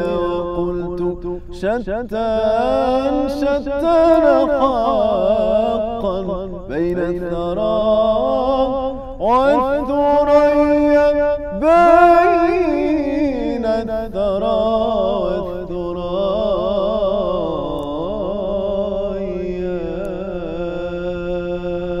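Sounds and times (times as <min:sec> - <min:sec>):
man singing solo: 0:00.0 - 0:17.4.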